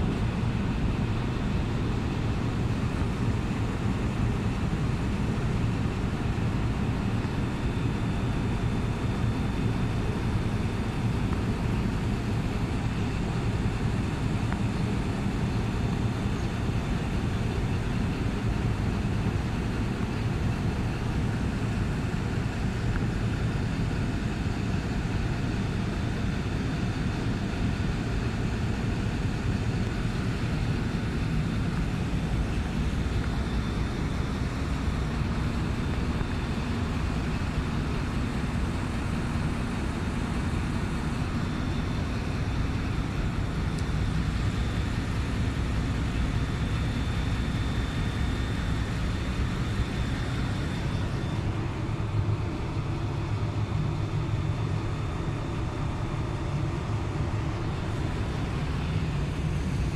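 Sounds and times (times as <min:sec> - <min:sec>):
low rumbling background noise: 0:00.0 - 0:59.9.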